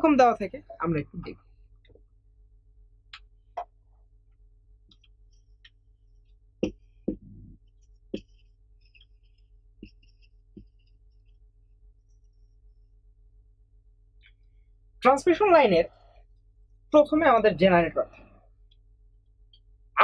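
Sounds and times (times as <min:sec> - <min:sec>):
steady low hum: 0:00.0 - 0:20.0
marker squeaking on whiteboard: 0:06.6 - 0:11.4.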